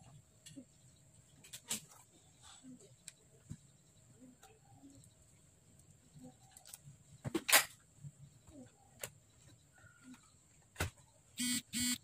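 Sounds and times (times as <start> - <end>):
short buzzing sounds: 11.4 - 12.0.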